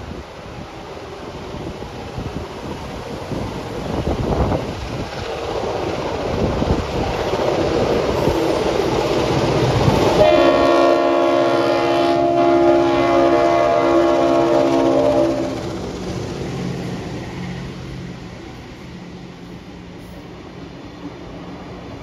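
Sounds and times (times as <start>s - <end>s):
diesel locomotives approaching: 0.0s - 22.0s
locomotive horn blast: 10.2s - 15.7s.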